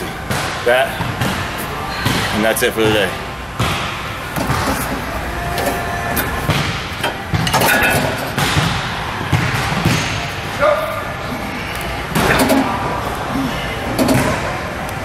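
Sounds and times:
steady background noise: 0:00.0 - 0:15.0
leg curl machine thumps and knocks: 0:14.0 - 0:14.5.

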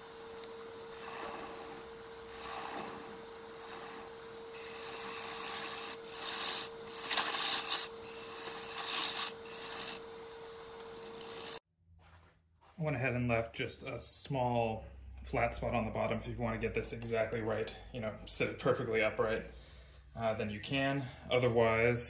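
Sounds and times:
lathe humming: 0:00.0 - 0:11.6
tool cutting turning wood: 0:00.2 - 0:11.6.

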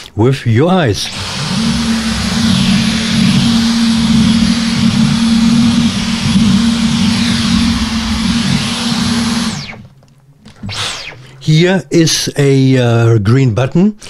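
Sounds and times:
vacuum cleaner running: 0:00.9 - 0:09.9.

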